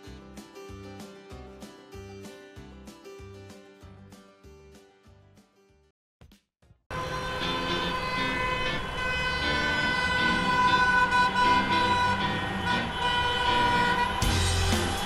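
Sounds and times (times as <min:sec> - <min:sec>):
car horns honking: 0:06.9 - 0:15.0.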